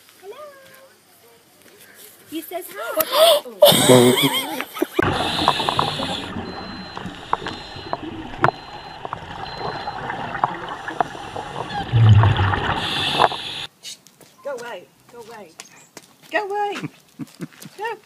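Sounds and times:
diver regulator hiss and bubbles: 5.0 - 13.7.

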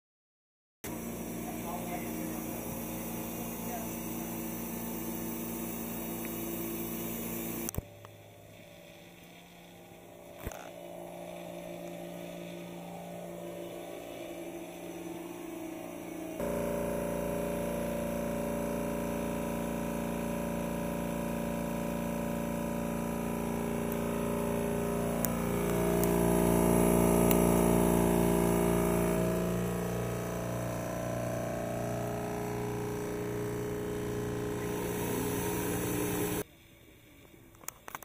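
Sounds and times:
carpet cleaning machine motor hum: 0.8 - 36.5.

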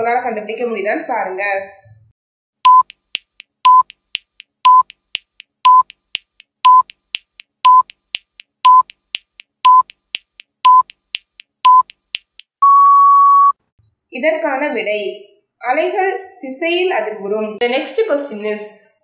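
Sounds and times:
faint timer ticks: 2.6 - 12.6
long steady beep: 2.7 - 2.9, 3.7 - 3.9, 4.7 - 4.9, 5.7 - 5.9, 6.7 - 6.9, 7.7 - 7.9, 8.7 - 8.9, 9.7 - 9.9, 10.7 - 10.9, 11.7 - 11.9, 12.6 - 13.6
short timer beeps: 2.7 - 7.0, 7.6 - 9.0, 9.6 - 10.0, 10.6 - 11.0, 11.6 - 12.0.

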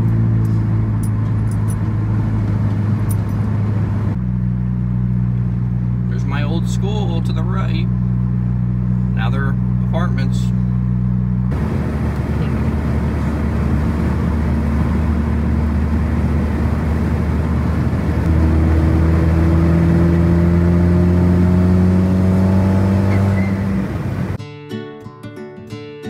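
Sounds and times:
car engine accelerating: 0.0 - 24.4
guitar music: 23.6 - 26.0.

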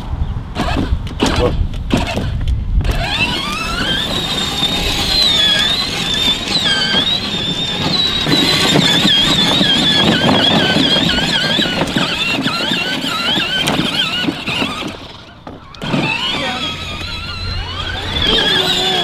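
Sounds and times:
wheels rolling rumble: 0.0 - 19.0
electric go-kart whine: 0.5 - 19.0.

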